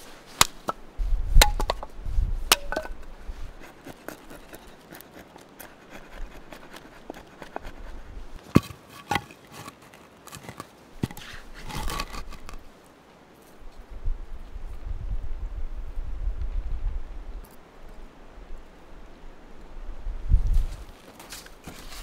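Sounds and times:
crunching on snow: 20.4 - 22.0.

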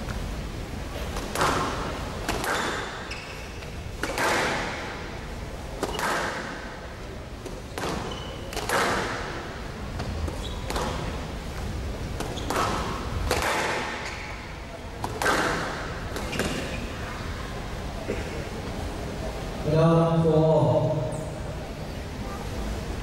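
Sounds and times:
squash ball hits: 1.1 - 3.0, 4.0 - 5.1, 5.8 - 6.7, 7.7 - 11.2, 12.1 - 14.3, 15.0 - 16.7
shoes squeaking on court: 2.3 - 4.4, 7.6 - 9.0, 10.0 - 13.1, 13.9 - 14.5, 16.1 - 17.1.

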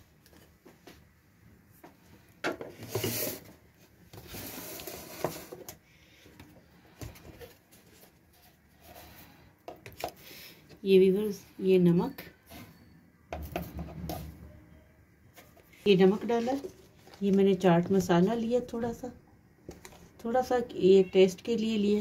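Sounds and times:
handling rustling and scraping: 0.2 - 10.3, 15.2 - 18.3.

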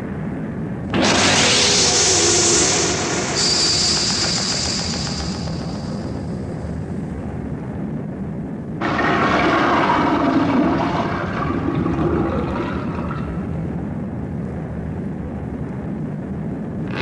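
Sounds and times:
low steady rumble: 0.0 - 3.4, 4.0 - 17.0
monster roar: 8.8 - 13.3.

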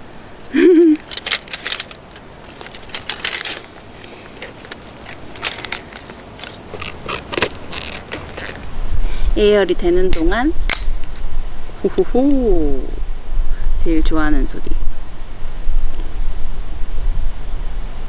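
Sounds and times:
metal tongs clinking: 1.0 - 3.8, 4.4 - 8.6.

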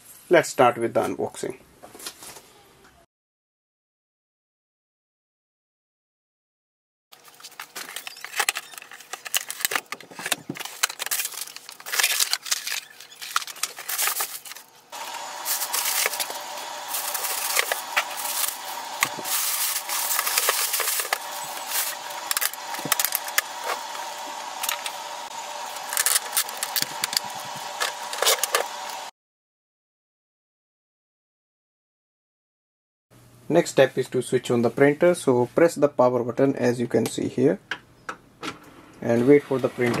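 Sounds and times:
foam and tape pulled off: 7.2 - 25.0, 25.7 - 29.1
plastic bag crinkling: 7.2 - 29.1
steady hum: 7.2 - 29.1.

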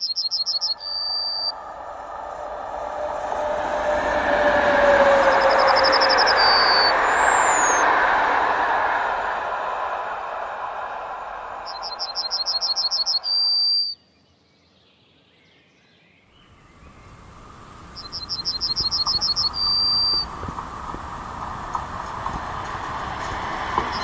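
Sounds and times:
songbird singing: 0.0 - 1.8, 3.8 - 8.0, 11.4 - 22.4, 23.2 - 24.0
passenger train rolling: 0.0 - 13.7, 16.6 - 24.0.

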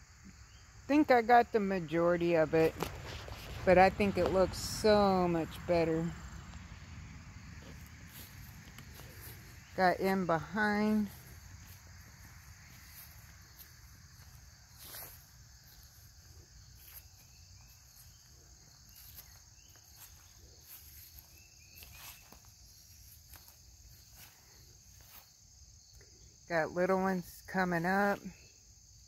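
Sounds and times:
insects chirring: 0.0 - 29.0
footsteps on soil: 2.6 - 4.2, 6.4 - 25.4.

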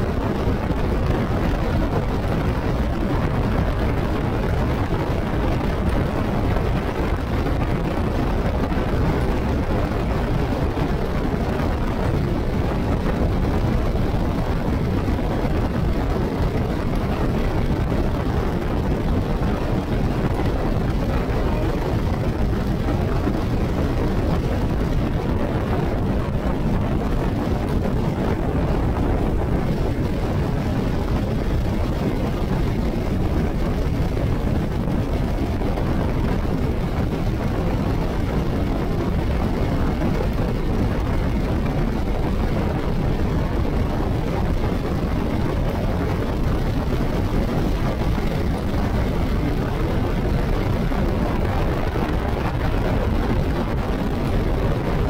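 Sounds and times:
wind rushing on microphone: 0.0 - 55.0.

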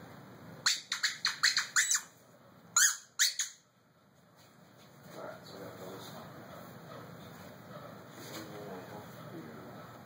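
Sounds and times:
dog toy squeaking: 0.6 - 2.1, 2.8 - 3.6.

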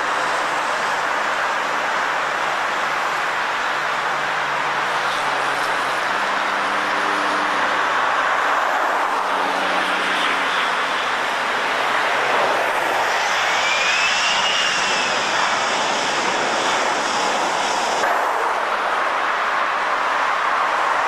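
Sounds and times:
jet engines rushing: 0.0 - 21.0
engine whine rising and falling: 9.2 - 19.1.

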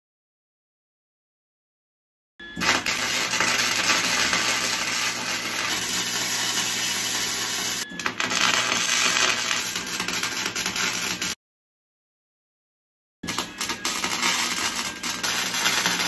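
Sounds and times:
welding arc crackling sizzle: 2.6 - 11.4, 13.2 - 16.0.

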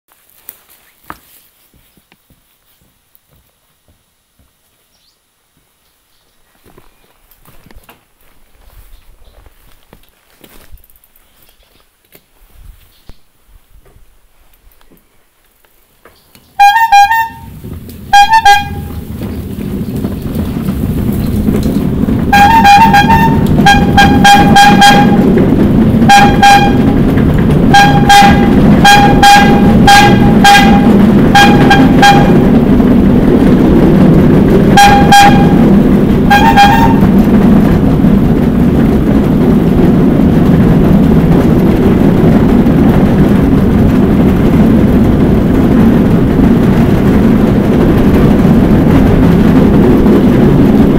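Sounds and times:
rail bike rumbling on track: 0.1 - 50.9
rail bike horn tooting: 16.6 - 19.3, 21.6 - 32.7, 34.6 - 37.4.

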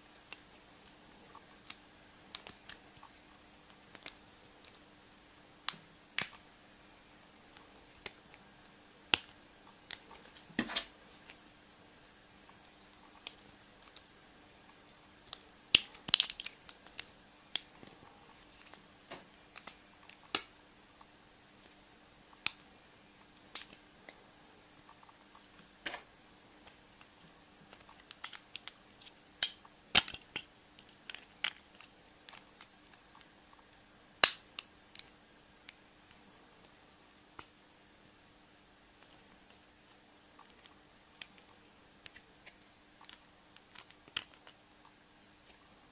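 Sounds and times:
wrappers and shells crackling: 26.7 - 33.0.

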